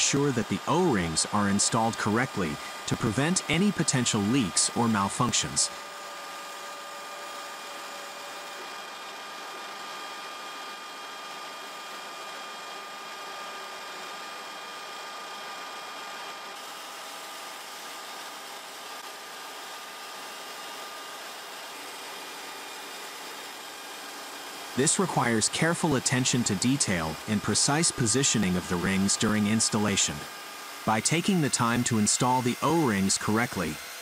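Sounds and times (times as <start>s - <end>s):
engine room machinery hiss: 0.0s - 5.9s, 24.8s - 30.3s.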